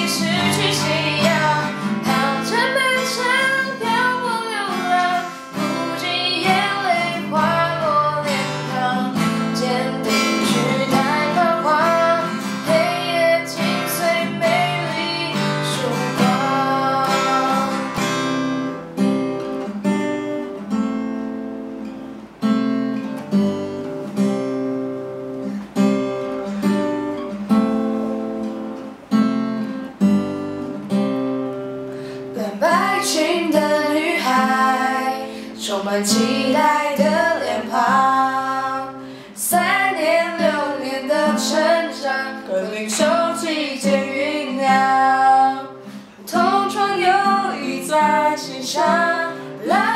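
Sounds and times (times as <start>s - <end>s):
two people singing: 0.0s - 18.1s, 32.3s - 49.9s
acoustic guitar: 0.0s - 49.9s.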